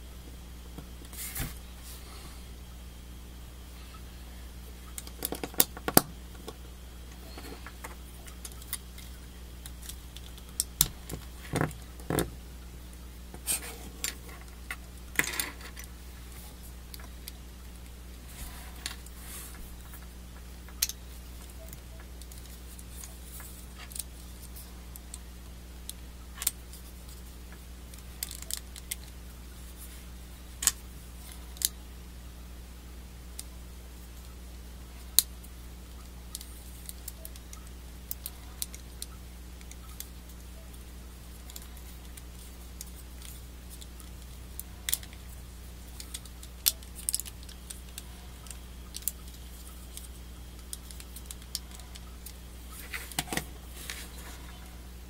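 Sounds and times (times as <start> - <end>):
steady low hum: 0.0 - 55.0
plastic parts clicking and snapping: 27.9 - 29.2, 42.8 - 45.2, 45.9 - 53.5.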